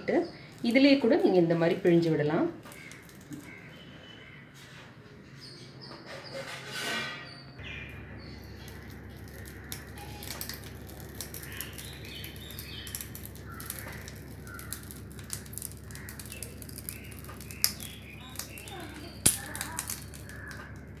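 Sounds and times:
steady low hum: 7.6 - 21.0.

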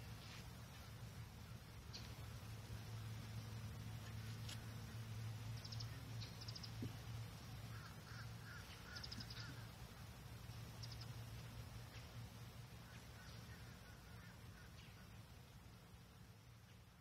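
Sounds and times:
steady low hum: 0.0 - 17.0
small birds chirping and trilling: 4.4 - 15.5.

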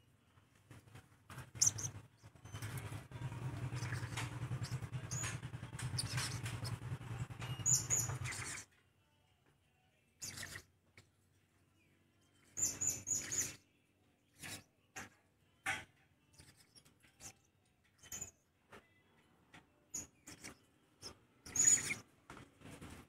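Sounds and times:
parrots high-pitched calls: 21.5 - 22.0.

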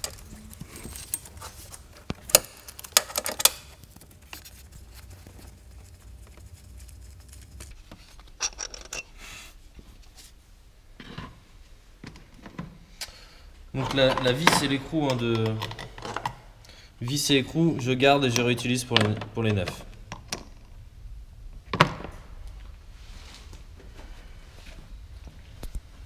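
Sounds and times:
handling noises: 0.0 - 10.4.

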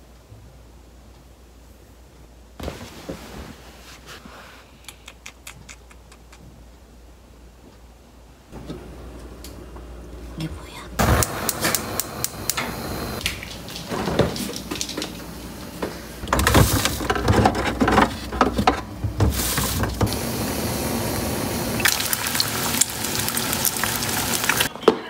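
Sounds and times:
knocks and rustles of handling: 2.6 - 4.3, 13.2 - 20.1
eggs sizzling in a frying pan: 20.1 - 24.7
stew bubbling in a pot: 20.1 - 24.7.

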